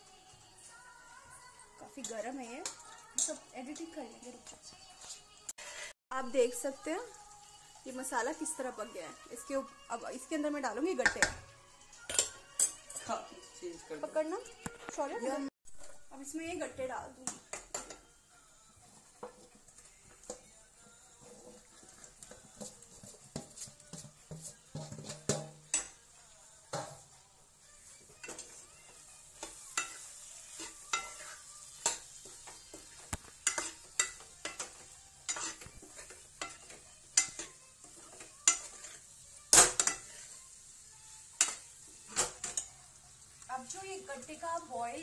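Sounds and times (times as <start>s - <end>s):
food sizzling: 0.0s - 45.0s
metal ladle scraping a pan: 1.6s - 6.0s, 7.6s - 14.1s, 18.8s - 26.1s, 28.0s - 44.3s.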